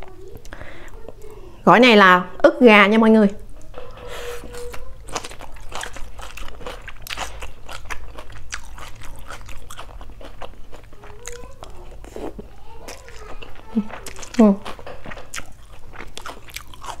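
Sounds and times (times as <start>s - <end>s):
crisp chewing crunches: 4.2s - 17.0s.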